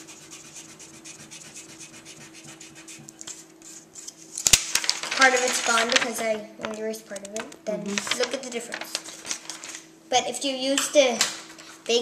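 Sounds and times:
eraser rubbing on paper: 0.0 - 4.2.

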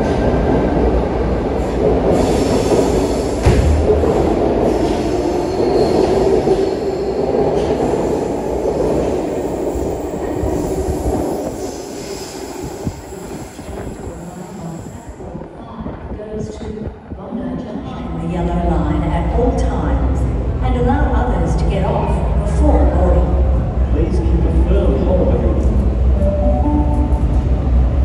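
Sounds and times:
electric train running on rails: 0.0 - 16.1, 23.1 - 28.0
train clunk: 2.2 - 6.8.

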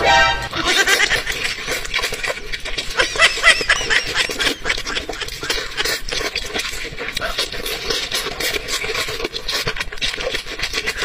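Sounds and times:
high squeaky sounds: 0.0 - 1.2
wet chewing and lip-smacking: 0.7 - 11.0.

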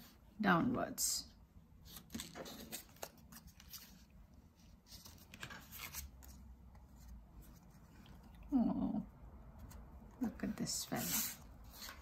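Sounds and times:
paper rustling: 1.9 - 8.0.

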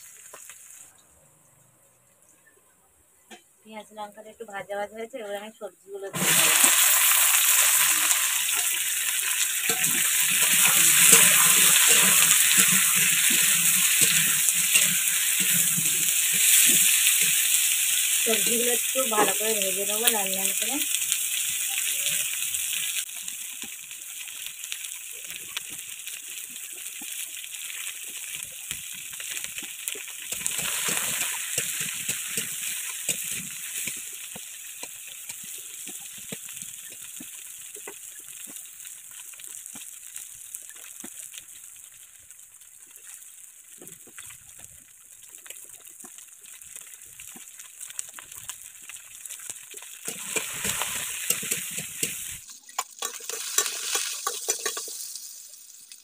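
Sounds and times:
vegetables sizzling in hot oil: 0.0 - 0.9, 4.1 - 56.0
metal spatula scraping and tapping: 9.6 - 17.5, 50.1 - 55.1.

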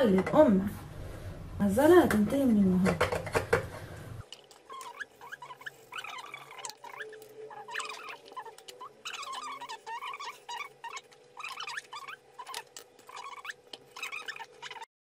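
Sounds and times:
plastic jars clicking and knocking: 2.8 - 3.7
high squeaks and chirps: 4.5 - 14.9.

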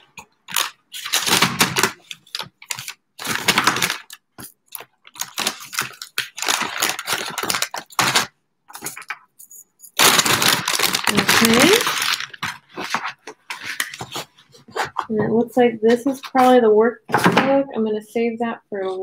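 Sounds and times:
paper bag rustling and crinkling: 0.5 - 9.2, 10.0 - 15.1.

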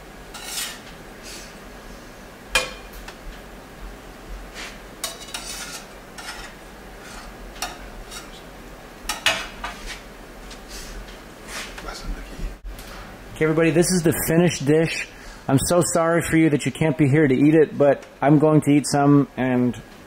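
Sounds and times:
plates and utensils clattering: 5.0 - 8.4, 9.1 - 9.9.

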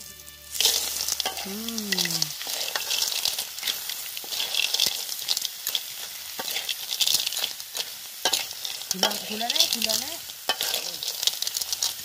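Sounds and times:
snails sizzling in a wok: 0.0 - 12.0
shells and spatula scraping pan: 0.5 - 12.0
short voice sound: 1.4 - 2.3.

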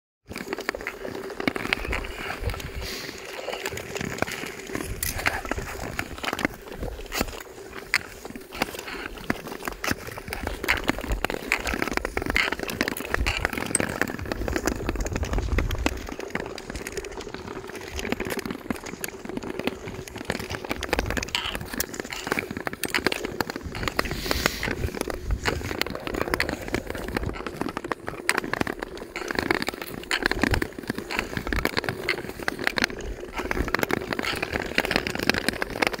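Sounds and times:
ice crackling and clicking: 0.3 - 36.0
ice skates scraping over ice: 0.3 - 36.0.

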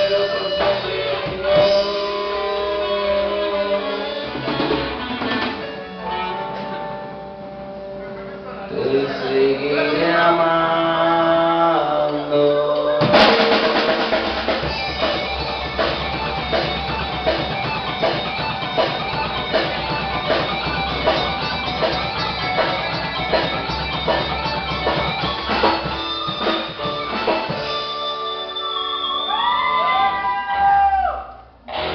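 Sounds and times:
drum kit steady beat: 0.0 - 7.9, 13.0 - 28.5
bass guitar: 0.0 - 31.9
electric guitar: 0.0 - 31.9.

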